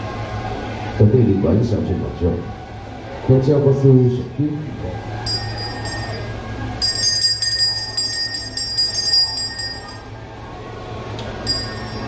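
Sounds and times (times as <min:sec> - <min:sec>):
low background hum: 0:00.0 - 0:12.0
small hand bell ringing: 0:05.2 - 0:10.1, 0:11.4 - 0:12.0.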